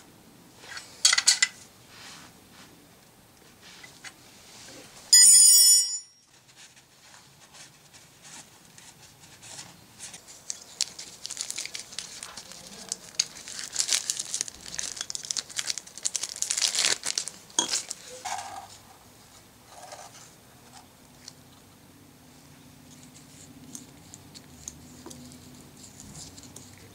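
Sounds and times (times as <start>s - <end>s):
loud bell-like ring: 5.1s - 6.3s
gloved hands crinkling and rustling: 6.4s - 18.8s, 22.8s - 26.9s.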